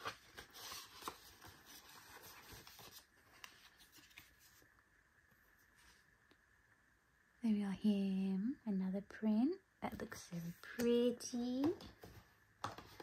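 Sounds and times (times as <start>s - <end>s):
paper rustling and tapping: 11.6s - 13.0s.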